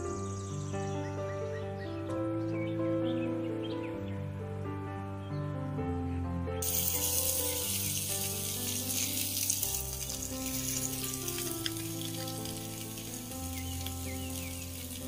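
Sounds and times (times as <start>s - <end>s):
background music: 0.0s - 15.0s
fish sizzling on a griddle: 6.6s - 15.0s.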